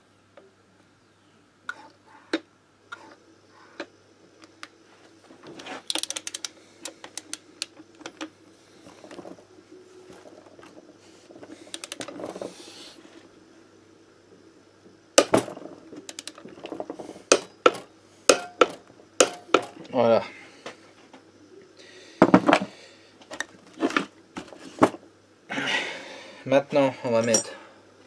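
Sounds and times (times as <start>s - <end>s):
torque wrench ratchet clicking: 5.9s - 6.5s, 16.1s - 16.4s.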